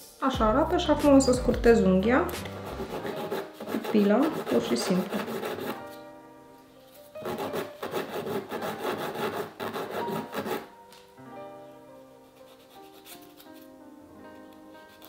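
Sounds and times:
soft background music: 0.0 - 15.0
nail file rasping on fingernail: 2.4 - 5.8, 7.2 - 10.7.

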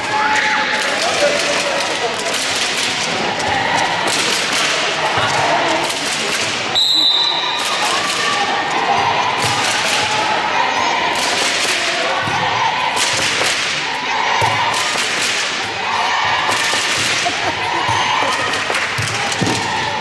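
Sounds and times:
voices shouting: 7.0 - 20.0.

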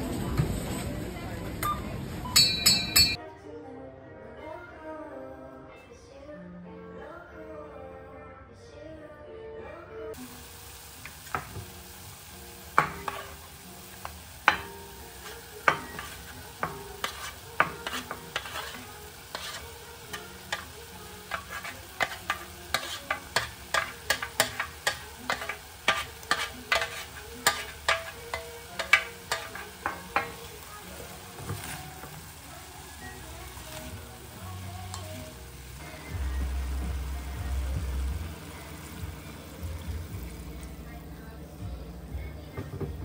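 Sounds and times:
food sizzling in a pan: 10.1 - 42.7
utensil scraping and knocking pan: 14.0 - 30.4.

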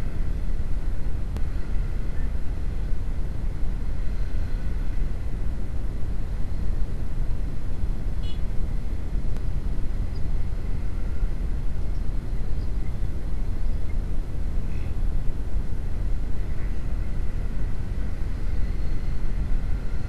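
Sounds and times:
motorcycle engine rumble: 0.0 - 20.0.

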